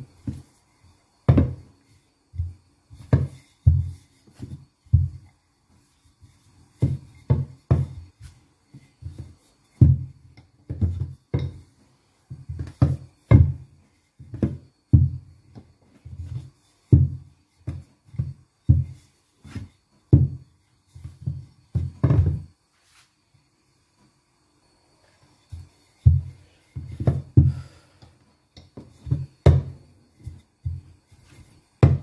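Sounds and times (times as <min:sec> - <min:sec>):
rolling pin thumping on table: 0:01.3 - 0:01.7, 0:02.4 - 0:05.3, 0:06.8 - 0:08.1, 0:09.1 - 0:11.6, 0:12.3 - 0:15.6, 0:16.2 - 0:20.4, 0:21.2 - 0:22.5, 0:28.6 - 0:32.0.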